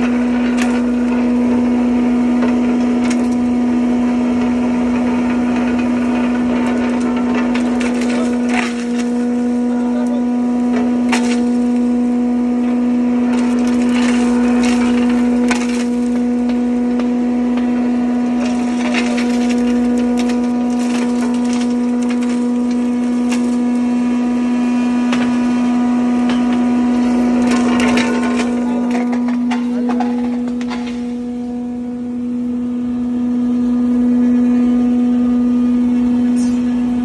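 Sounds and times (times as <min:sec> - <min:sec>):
electric grinder humming: 0:00.0 - 0:37.0
salt cracking: 0:18.3 - 0:24.0.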